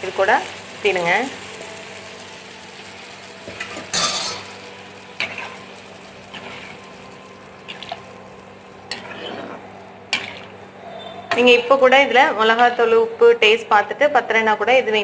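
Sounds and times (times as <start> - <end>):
ladle scraping a pan: 3.4 - 8.1, 8.9 - 10.6.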